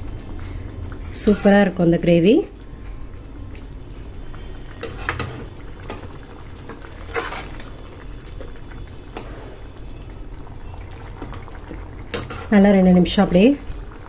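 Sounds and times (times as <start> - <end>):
ladle stirring thick gravy: 2.6 - 12.6
ladle scraping and clinking on pan: 4.8 - 5.4, 7.1 - 7.6, 12.1 - 12.5.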